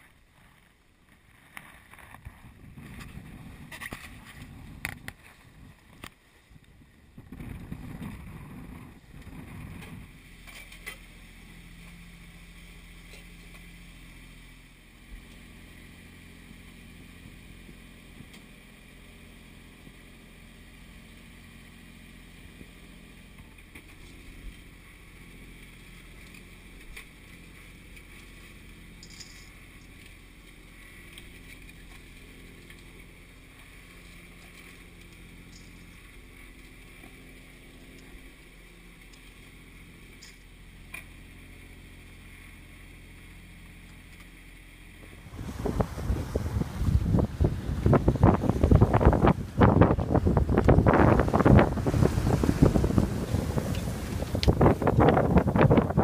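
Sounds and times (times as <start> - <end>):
muffled rumble and hum: 0.0 - 56.0
wind buffeting microphone: 2.2 - 5.8, 6.6 - 10.2, 45.0 - 56.0.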